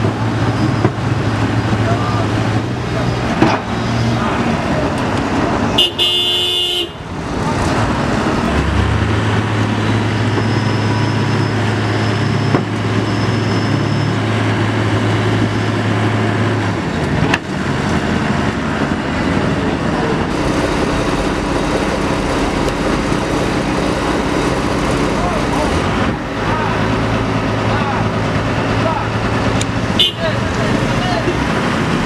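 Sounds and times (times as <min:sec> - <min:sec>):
diesel engines working: 0:00.0 - 0:32.0
steady low engine drone: 0:00.0 - 0:32.0
horn toot: 0:05.8 - 0:07.1, 0:30.0 - 0:30.3.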